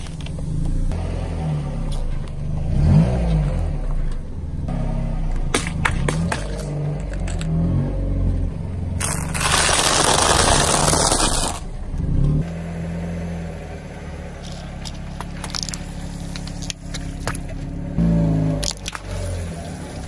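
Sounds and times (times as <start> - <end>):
small crackles under tyre: 0.0 - 0.8, 9.0 - 12.4, 14.4 - 17.7
car engine running low: 0.0 - 20.0
tyre crunching over sticks: 9.0 - 11.6.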